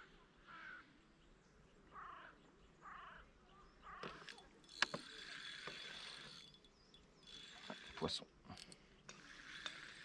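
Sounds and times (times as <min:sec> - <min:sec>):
bird calling: 0:01.7 - 0:08.1
fishing reel clicking: 0:04.0 - 0:10.0
fishing reel whirring: 0:04.0 - 0:10.0.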